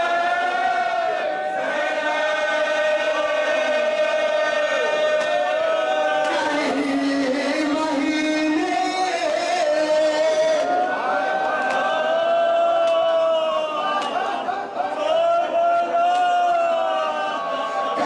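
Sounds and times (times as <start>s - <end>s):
man singing into a microphone: 6.2s - 10.9s.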